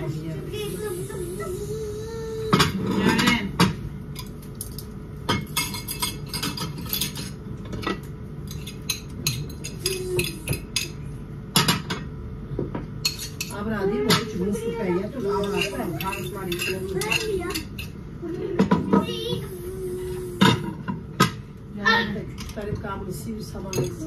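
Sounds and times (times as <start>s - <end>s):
steady low hum: 0.0s - 24.0s
cutlery and dishes clinking: 2.6s - 11.0s, 13.0s - 14.4s, 15.2s - 18.0s, 23.6s - 24.0s.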